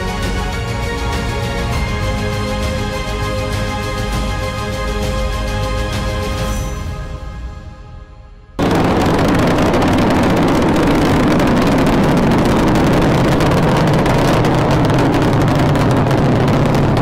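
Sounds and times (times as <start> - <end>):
loud rumbling rocket engines: 8.6 - 17.0.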